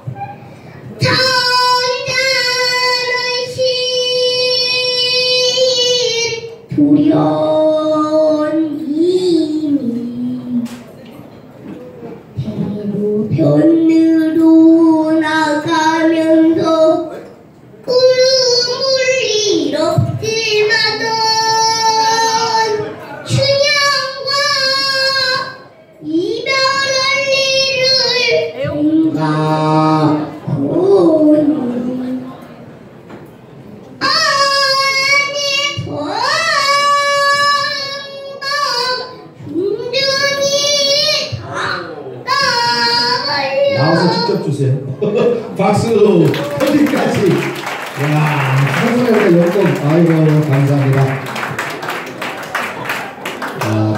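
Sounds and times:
girl singing with vibrato: 0.9s - 10.8s, 12.4s - 17.2s, 17.9s - 32.4s, 34.0s - 44.4s.

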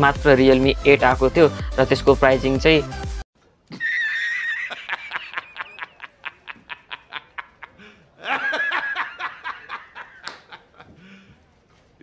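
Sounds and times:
man laughing in high cackle: 3.7s - 11.1s.

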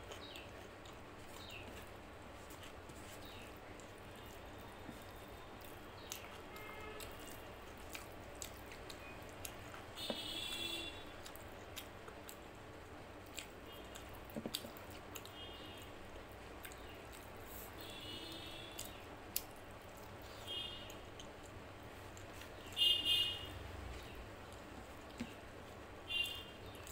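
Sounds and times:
fingers squishing rice: 0.0s - 12.4s
soft wet chewing: 0.0s - 26.9s.

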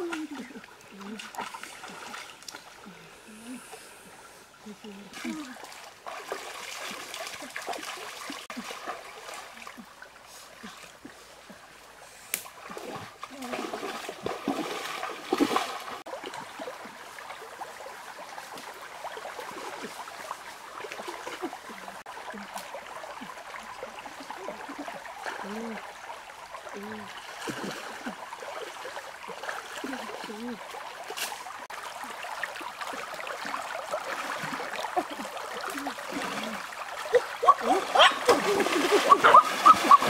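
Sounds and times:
people wading through water: 0.0s - 40.0s
stream water trickling: 0.0s - 40.0s.

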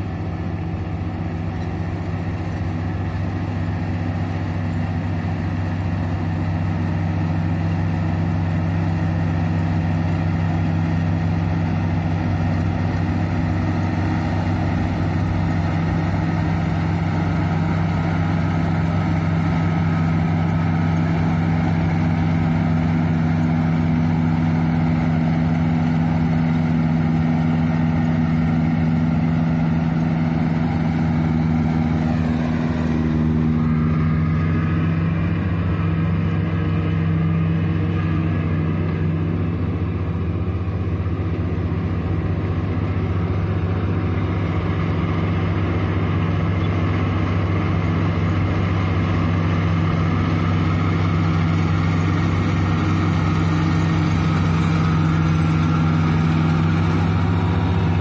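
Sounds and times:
combine harvester engine humming: 0.0s - 58.0s.

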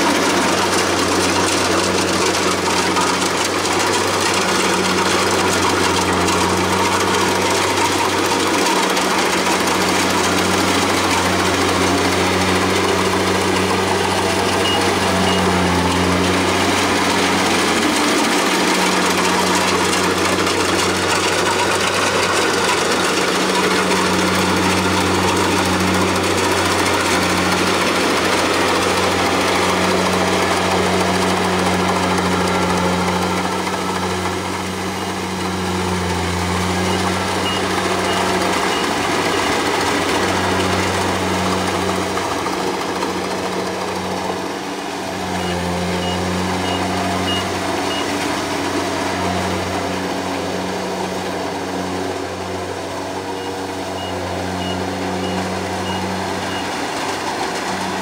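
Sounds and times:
combine harvester engine drone: 0.0s - 58.0s
faint high-pitched beeping: 14.4s - 15.6s, 45.4s - 48.2s.

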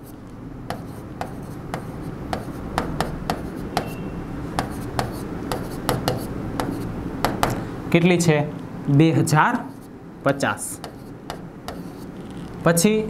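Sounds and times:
pen tapping and scraping on glass: 0.7s - 4.0s, 4.6s - 7.6s, 10.8s - 12.0s.

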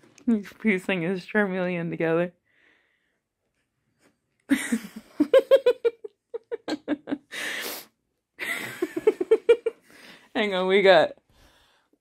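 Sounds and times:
person laughing: 4.5s - 7.8s, 8.4s - 9.8s
gasping inhale: 7.3s - 7.9s, 9.8s - 10.3s.

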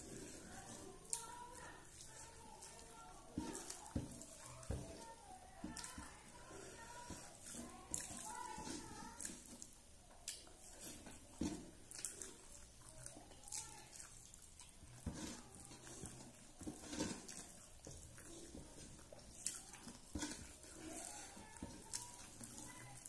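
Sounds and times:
fingers squishing rice on steel plate: 0.0s - 23.0s
chewing and lip smacks: 9.2s - 15.0s, 15.6s - 23.0s.

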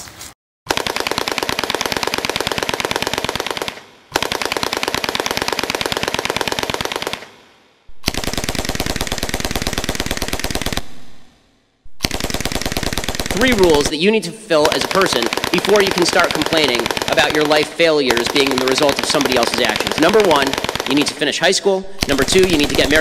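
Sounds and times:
automatic gunfire bursts: 0.7s - 11.3s, 11.9s - 13.9s, 14.5s - 23.0s.

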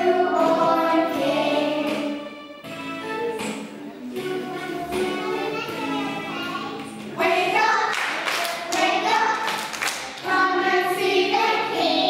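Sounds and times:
children singing: 0.0s - 12.0s
hand claps: 7.8s - 10.3s.

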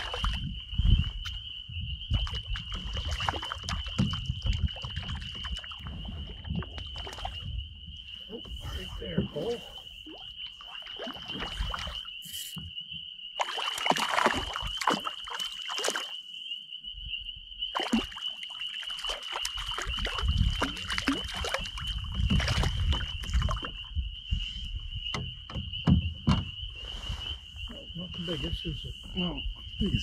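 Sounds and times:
high-pitched animal chorus: 1.7s - 12.6s
fish splashing at water surface: 13.4s - 16.2s, 17.8s - 23.7s.

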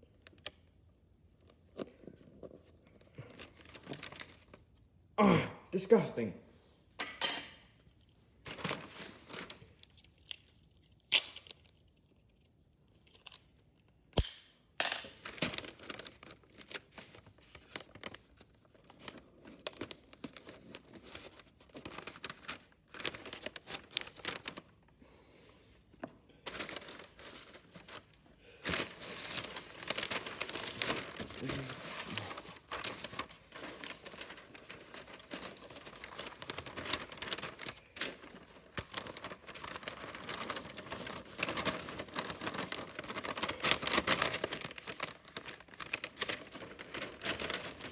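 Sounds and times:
wrapping paper rustling and crinkling: 1.4s - 4.8s, 7.8s - 13.6s, 15.1s - 25.2s, 26.4s - 47.9s
paper snapping: 14.2s - 14.5s.

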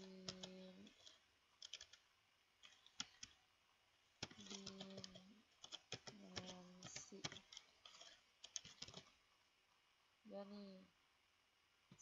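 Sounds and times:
computer keyboard typing: 0.0s - 3.4s, 4.2s - 9.2s.

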